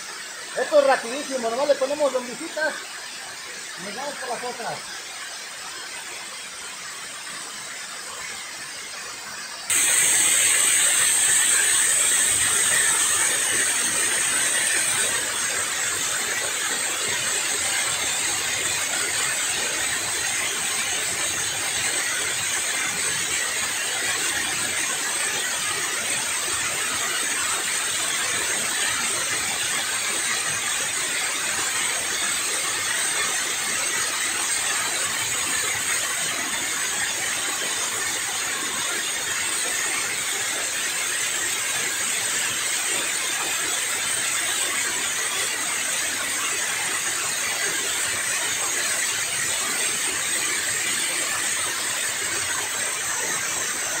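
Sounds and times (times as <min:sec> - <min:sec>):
water rushing down spillway: 0:09.8 - 0:54.0.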